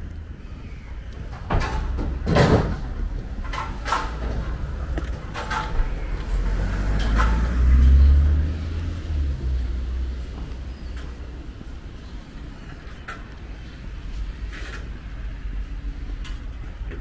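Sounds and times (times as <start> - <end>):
small car driving past: 5.5 - 11.2.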